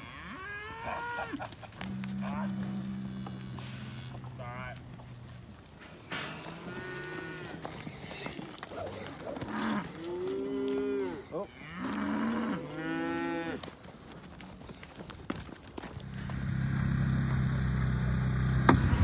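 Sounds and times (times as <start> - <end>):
cattle mooing: 0.0 - 13.6.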